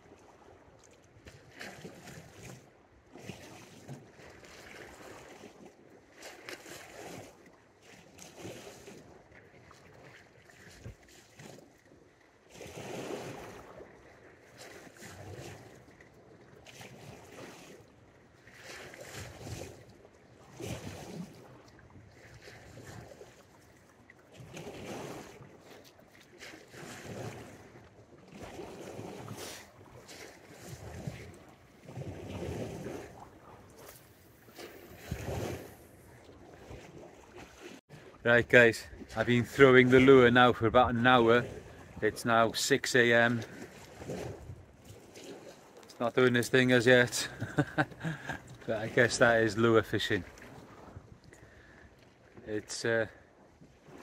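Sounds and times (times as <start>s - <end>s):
small waves lapping on shore: 0.0s - 54.0s
wind on microphone: 30.6s - 36.3s, 44.0s - 44.8s.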